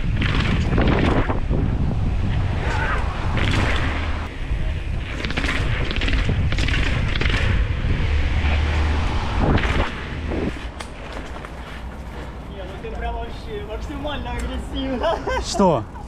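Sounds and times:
wind buffeting microphone: 0.0 - 14.7
bike knocks and rattles: 10.5 - 12.3.

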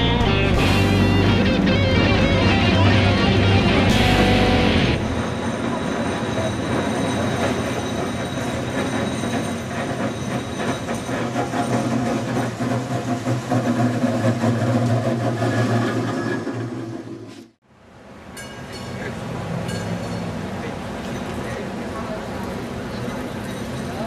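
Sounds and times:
streetcar rumbling hum: 0.0 - 24.0
steel wheels clicking on rails: 5.0 - 17.4, 18.3 - 24.0.

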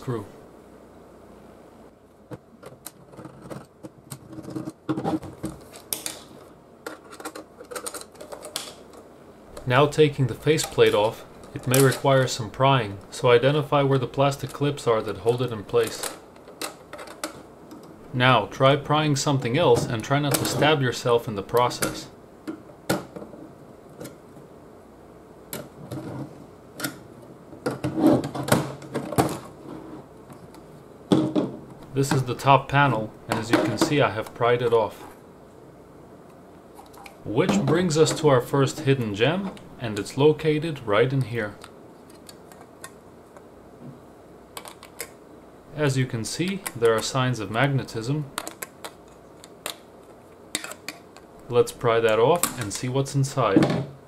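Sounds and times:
metal casing clicking and rattling: 6.8 - 9.0.

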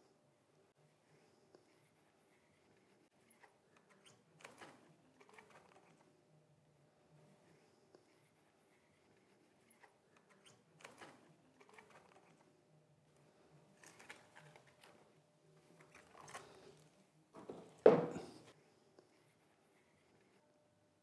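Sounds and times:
plastic object thud on wooden table: 17.4 - 18.3.

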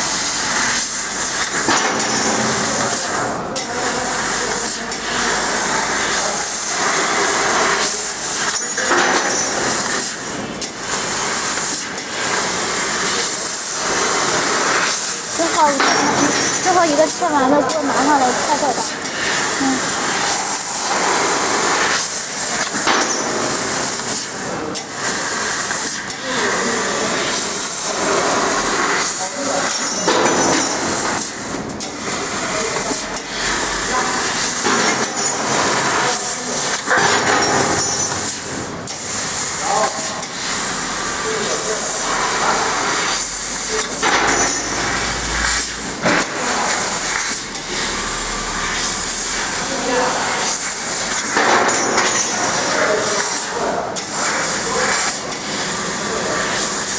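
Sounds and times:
laser cutter gas jet hiss: 0.0 - 56.9.

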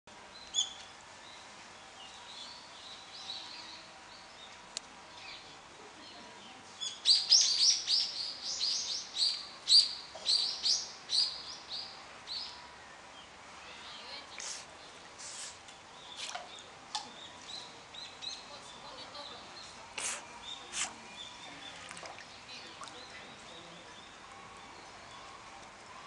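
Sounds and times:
small birds chirping: 0.3 - 26.0.

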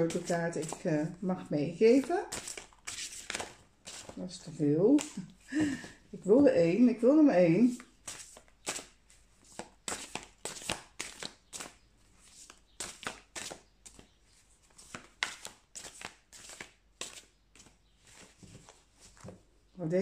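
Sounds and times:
cards shuffled by hand: 2.0 - 4.2, 5.0 - 5.3, 7.7 - 14.1, 14.7 - 19.4.

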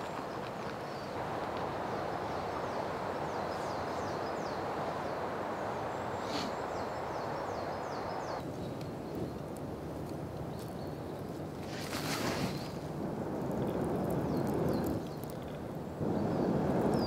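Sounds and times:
small birds singing: 0.0 - 17.0
steady rushing hiss: 0.0 - 17.0.

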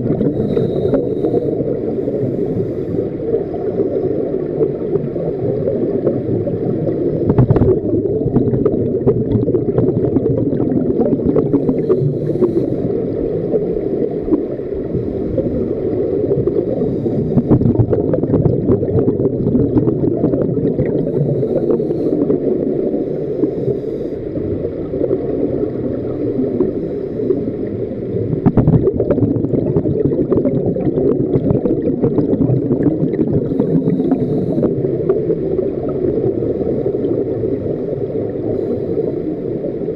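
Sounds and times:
bubbles rising: 0.0 - 2.1, 3.2 - 23.0, 24.4 - 38.5
underwater regulator breathing: 0.1 - 4.1, 11.4 - 13.2, 16.6 - 17.8, 20.8 - 24.4, 33.2 - 35.0, 38.4 - 39.7.

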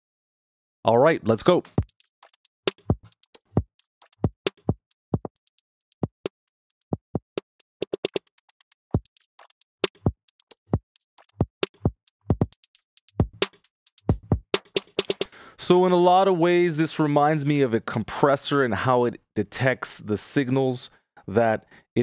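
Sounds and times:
drum attack clicks: 7.9 - 15.3.

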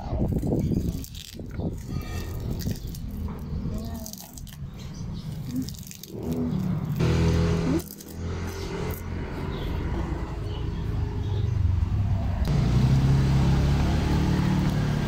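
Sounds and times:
motor engine humming: 7.0 - 15.0.

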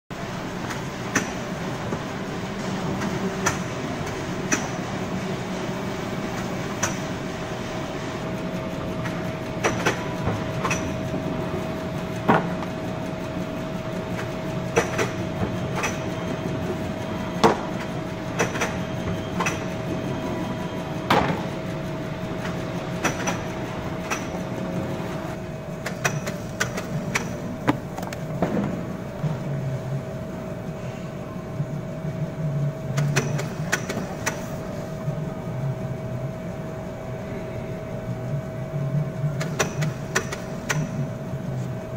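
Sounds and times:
machine mechanical hum: 0.1 - 41.9
sharp mechanical clicks and clacks: 6.4 - 7.1, 9.0 - 11.0, 14.1 - 16.4, 17.4 - 19.9, 22.4 - 24.4, 25.8 - 28.5, 32.9 - 34.5, 39.4 - 41.0.

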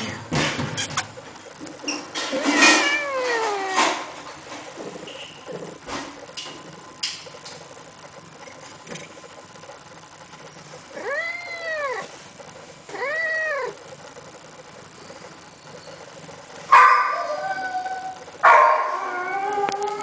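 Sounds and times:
cat meowing: 2.6 - 4.0, 11.0 - 12.0, 12.9 - 13.8.

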